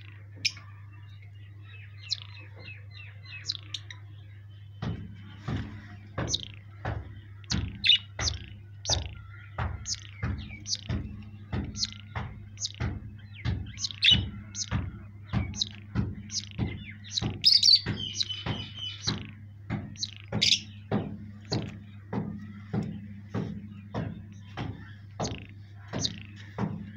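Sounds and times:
rhythmic thuds: 1.9 - 3.9, 4.6 - 26.9
parrots chirping: 6.2 - 20.8.

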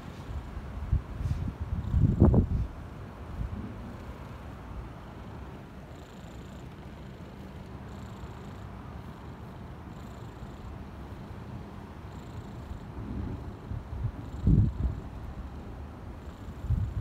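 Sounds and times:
kitten purring: 5.2 - 17.0.

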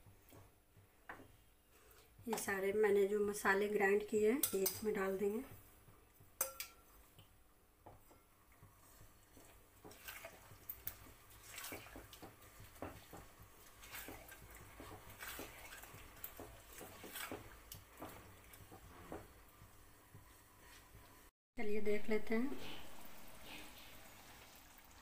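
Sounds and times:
curry bubbling and spluttering: 8.4 - 20.3.

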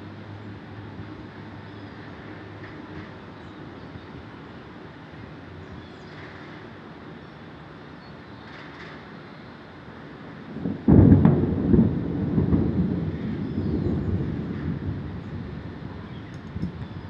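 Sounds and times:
thunder crack and rumble: 10.4 - 17.0.

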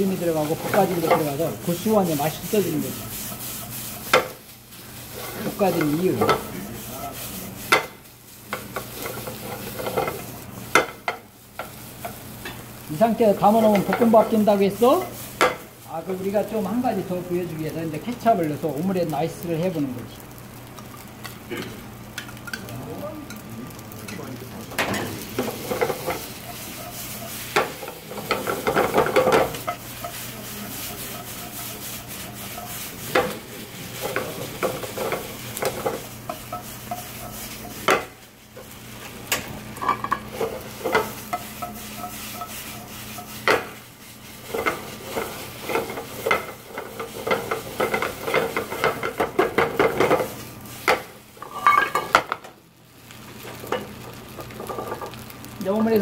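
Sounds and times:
rice sizzling: 0.0 - 56.0
metal spatula scraping pan: 24.9 - 38.7, 39.8 - 43.8, 51.4 - 52.2.

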